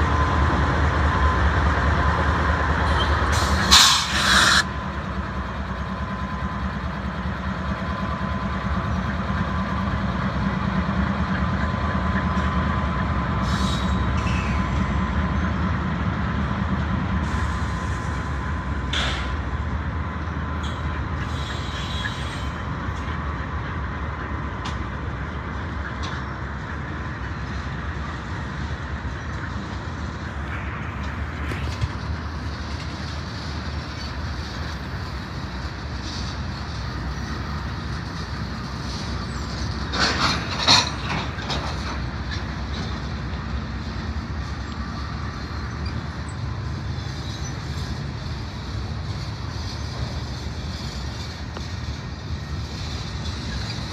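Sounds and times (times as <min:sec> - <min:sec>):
train wheels rumbling on rail: 0:00.0 - 0:53.9
train wheel clicks: 0:31.0 - 0:53.9.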